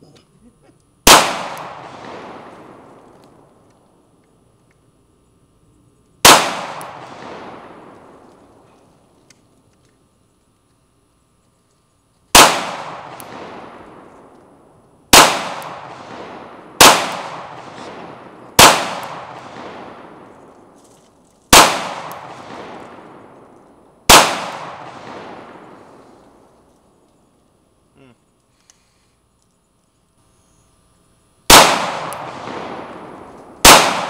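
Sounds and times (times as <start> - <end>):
pistol shots echoing: 1.0 - 3.4, 6.2 - 8.6, 12.3 - 14.3, 15.1 - 20.8, 21.5 - 26.5, 31.5 - 34.0.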